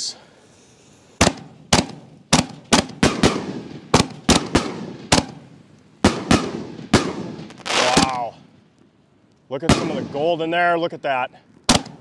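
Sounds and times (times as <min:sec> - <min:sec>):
firework bangs with rolling echo: 0:01.2 - 0:08.3, 0:09.6 - 0:10.4.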